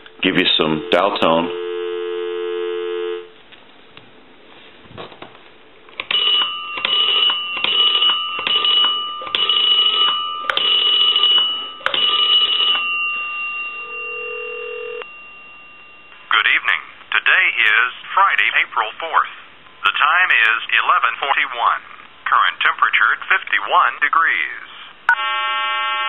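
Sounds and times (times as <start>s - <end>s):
steady high tone: 0.0s - 3.3s, 6.4s - 17.9s
telephone dial tone: 6.0s - 12.9s, 13.9s - 15.1s.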